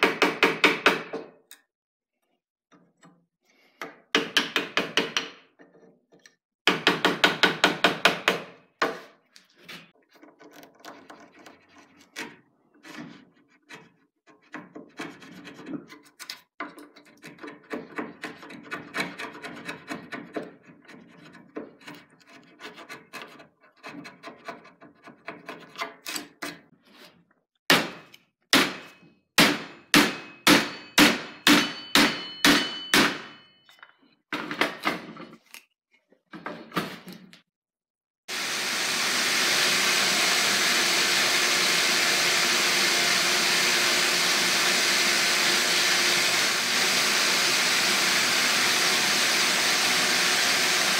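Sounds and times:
chisel scraping wood: 0:08.8 - 0:27.3
sharp knocks with metallic ring: 0:27.7 - 0:33.6
belt sander running: 0:38.3 - 0:50.9.

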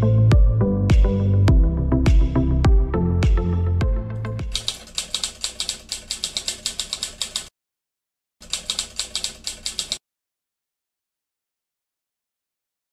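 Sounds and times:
background music: 0:00.0 - 0:04.7
typewriter key clicks: 0:04.5 - 0:07.5, 0:08.4 - 0:10.0.

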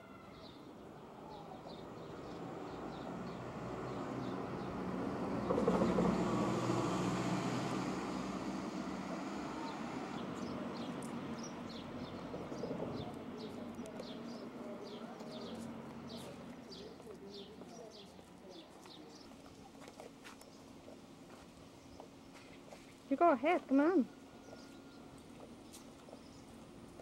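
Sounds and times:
passing vehicle engine rumble: 0:00.9 - 0:23.3
small birds chirping: 0:09.6 - 0:27.0.

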